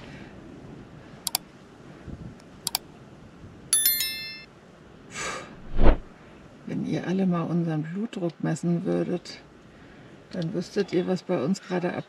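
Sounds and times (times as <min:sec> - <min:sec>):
high-pitched metallic ding: 0:03.8 - 0:04.5
brief hiss: 0:05.1 - 0:06.1.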